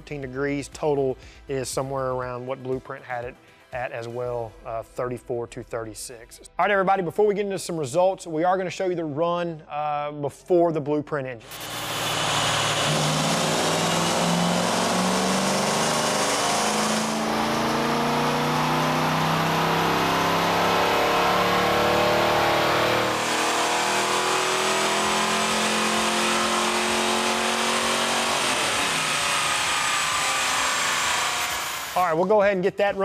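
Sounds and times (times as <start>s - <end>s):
car engine revving at full throttle: 11.4s - 32.0s.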